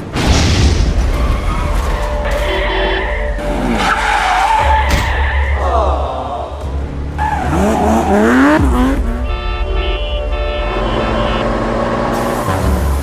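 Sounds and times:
tyres skidding: 1.0 - 13.0
car engine revving: 6.6 - 9.4.

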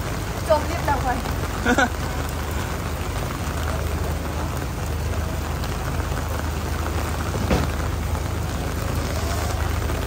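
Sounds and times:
heavy rain falling: 0.0 - 10.0.

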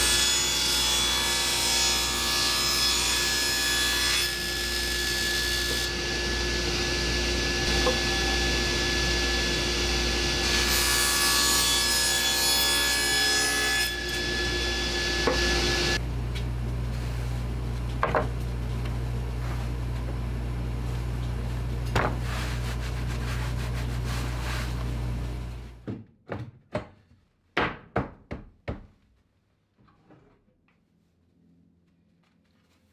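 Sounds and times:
table saw cutting plywood: 0.0 - 16.0
low steady hum: 16.0 - 25.8.

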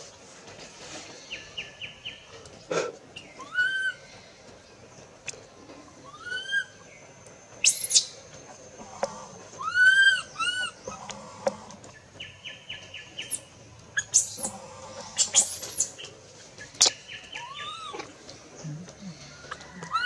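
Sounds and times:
infant monkey squealing: 7.6 - 8.2, 9.6 - 10.8, 14.0 - 16.0.

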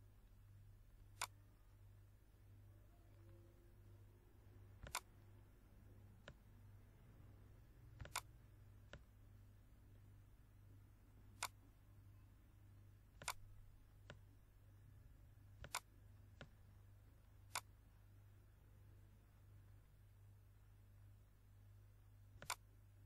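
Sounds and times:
faint low hum: 0.0 - 23.0
computer mouse clicking: 1.2 - 1.4, 4.8 - 5.1, 7.8 - 9.2, 11.3 - 11.7, 13.2 - 14.3, 15.6 - 16.6, 17.4 - 17.7, 22.4 - 22.7.

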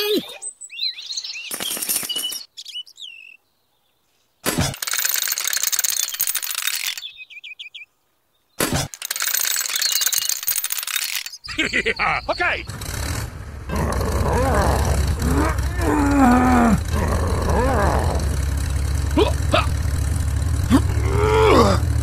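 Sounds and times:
bird chirps: 0.0 - 4.2, 5.9 - 8.6, 9.6 - 10.4, 11.3 - 12.8
small metal chain rattling: 1.5 - 2.5, 4.7 - 7.1, 8.9 - 11.5.

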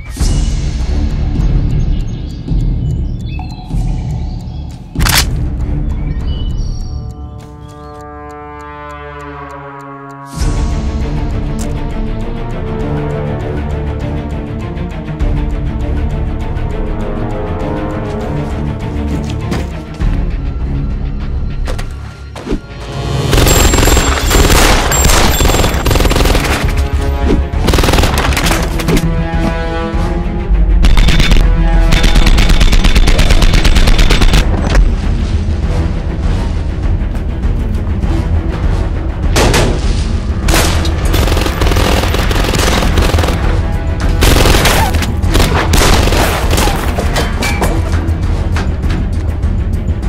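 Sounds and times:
loud action music: 22.7 - 50.0
rapid automatic gunfire: 23.3 - 26.9, 27.6 - 28.7, 30.9 - 34.4, 41.1 - 43.6, 44.2 - 46.8.

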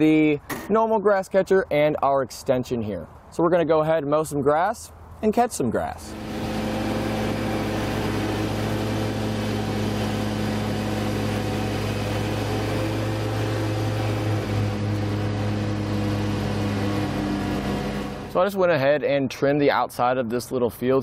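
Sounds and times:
lawn mower engine running: 6.1 - 18.5.

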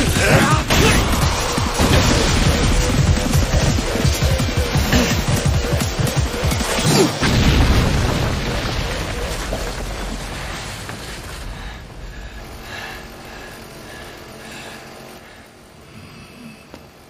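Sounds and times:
low rumble: 7.4 - 14.7.

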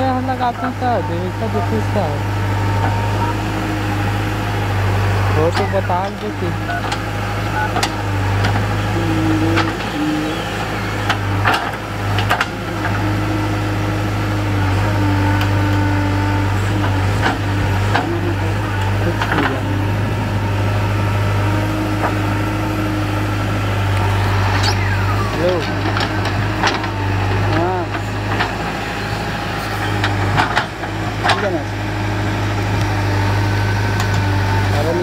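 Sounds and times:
diesel engine running under load: 0.0 - 35.0
hydraulic arm whine: 0.0 - 35.0.

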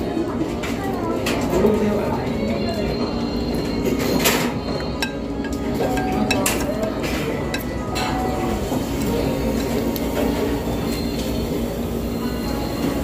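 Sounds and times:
spoon and chopsticks clinking bowl: 5.0 - 8.3.

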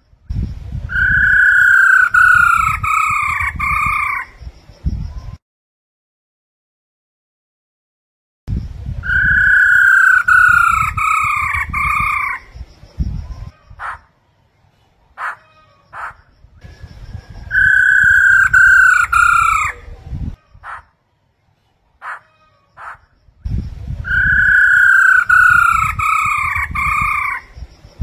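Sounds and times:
bird whistled phrase: 0.9 - 4.2, 9.0 - 11.3, 17.5 - 19.8, 24.1 - 27.4.

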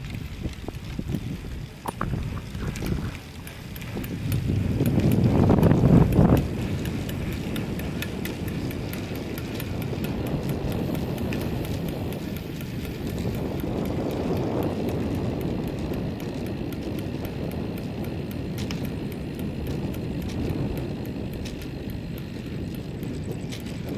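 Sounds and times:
light regular ticking: 0.0 - 23.9
rolling road noise: 0.0 - 23.9
wind rushing over microphone: 0.0 - 23.9.

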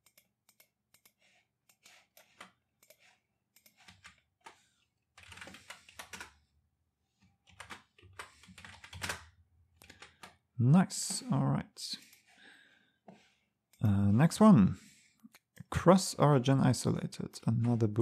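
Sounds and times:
computer keyboard typing: 0.0 - 6.4, 7.4 - 10.4.

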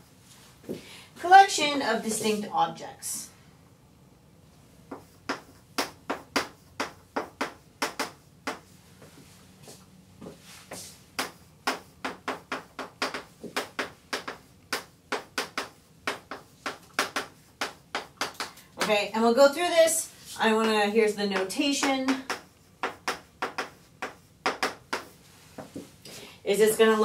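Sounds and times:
chalk tapping on blackboard: 4.9 - 8.7, 10.7 - 18.9, 20.5 - 25.9.

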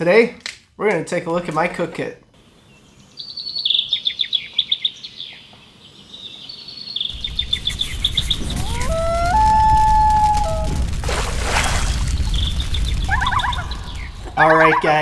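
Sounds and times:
songbird chirping in trills: 2.4 - 9.2
low rumble: 7.1 - 14.4.

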